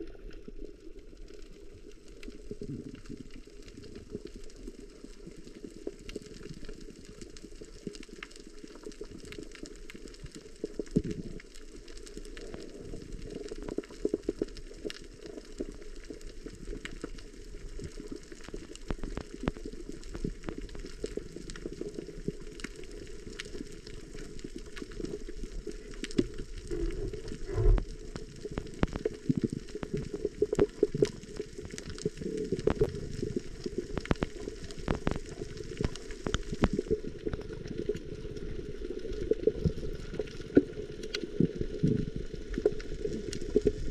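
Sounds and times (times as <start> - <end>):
crackling clicks: 0.0 - 43.9
muffled underwater rush: 16.3 - 43.9.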